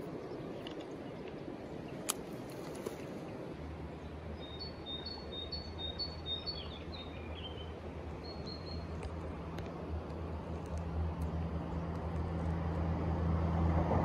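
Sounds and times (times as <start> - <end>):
bird chirping: 0.0 - 9.1
outdoor background noise: 0.0 - 14.0
low steady drone: 3.1 - 14.0.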